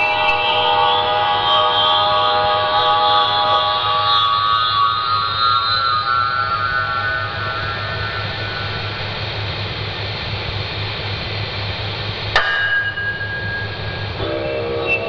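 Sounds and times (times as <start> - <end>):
dense hiss-like wash: 4.4 - 15.0
low throbbing hum: 6.8 - 15.0
sharp ringing strike: 12.4 - 15.0.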